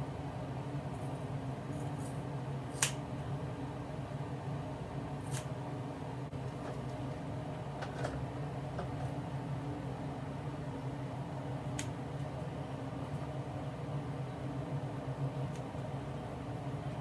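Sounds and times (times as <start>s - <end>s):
scissors snipping hair: 2.7s - 3.0s, 5.2s - 5.5s, 11.7s - 11.9s.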